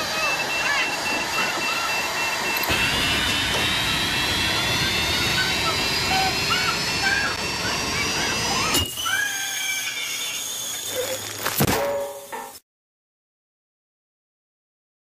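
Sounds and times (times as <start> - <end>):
repeating beep: 0.0 - 9.4
high whine rising in pitch: 0.0 - 12.4
compressed air hissing: 2.5 - 11.4.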